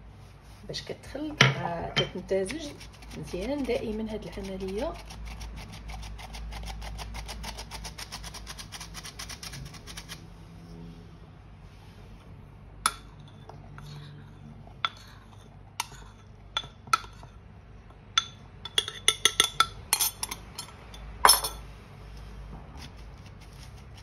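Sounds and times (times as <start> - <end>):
bowl and spoon clinking: 18.1 - 21.6.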